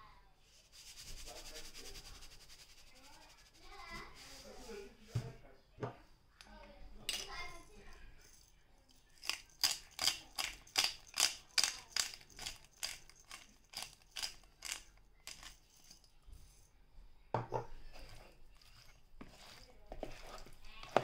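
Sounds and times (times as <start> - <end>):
pepper grinder crunching: 9.2 - 15.6.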